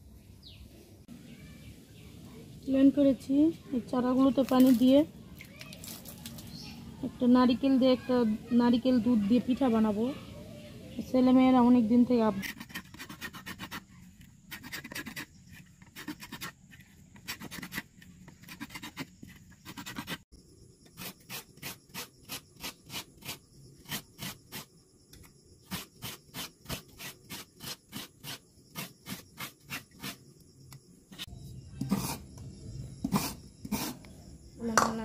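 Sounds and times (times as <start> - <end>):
wooden spoon scraping dough in pot: 33.0 - 34.1.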